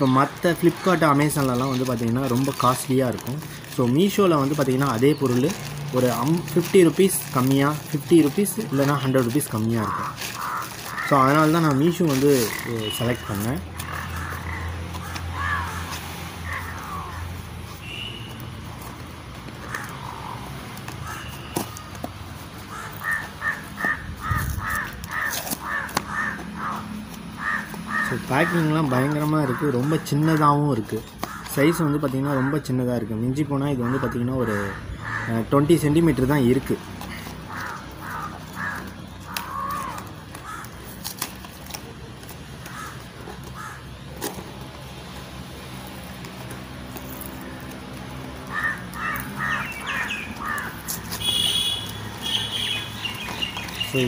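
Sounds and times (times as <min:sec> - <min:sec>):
crow cawing: 0:09.5 - 0:18.2, 0:19.6 - 0:21.9, 0:22.6 - 0:30.3, 0:31.2 - 0:32.8, 0:33.6 - 0:35.7, 0:37.0 - 0:41.3, 0:42.6 - 0:44.1, 0:47.1 - 0:53.8.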